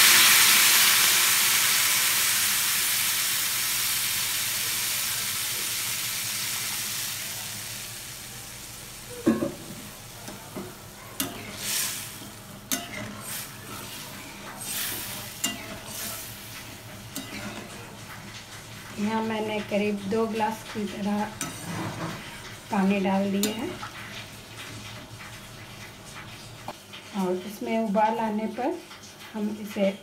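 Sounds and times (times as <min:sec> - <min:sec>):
water sizzling in hot pan: 0:00.0 - 0:30.0
metal spatula scraping pan: 0:20.6 - 0:22.6.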